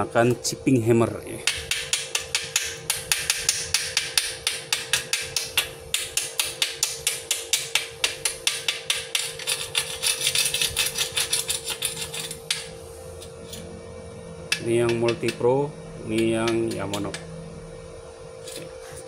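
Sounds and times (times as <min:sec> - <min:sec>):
hammer tapping on steel: 0:01.4 - 0:09.4, 0:14.5 - 0:15.4.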